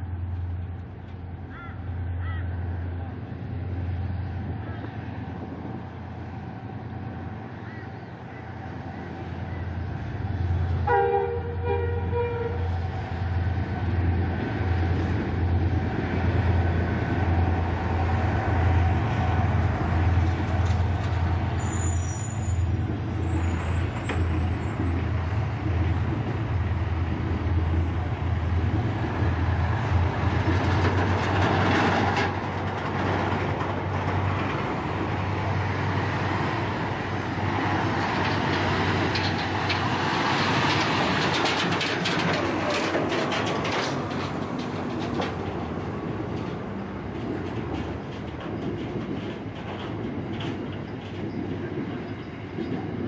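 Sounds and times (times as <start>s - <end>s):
diesel locomotive engine throbbing: 0.0s - 53.0s
locomotive horn toot: 10.8s - 12.8s.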